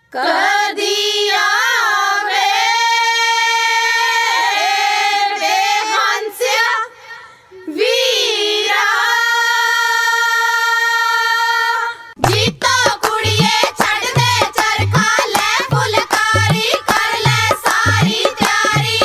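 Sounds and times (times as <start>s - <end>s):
backing music with drum beats: 12.2s - 19.0s.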